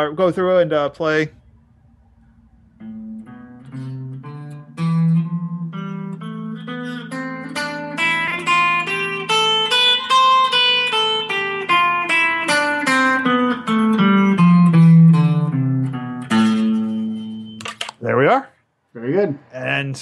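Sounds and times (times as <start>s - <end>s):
guitar playing a scale: 2.4s - 17.9s.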